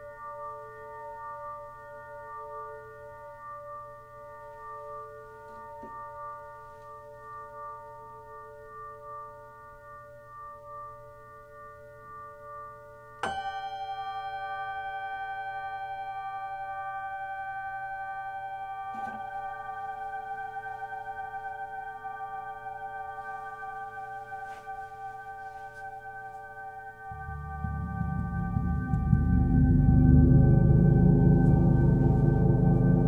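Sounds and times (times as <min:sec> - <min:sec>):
hanging cymbal ringing: 0:13.2 - 0:25.0, 0:26.2 - 0:33.0.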